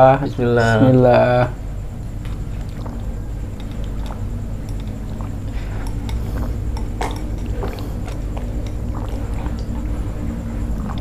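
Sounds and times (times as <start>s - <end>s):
steady low hum: 0.0s - 11.0s
man gulping and slurping: 2.2s - 11.0s.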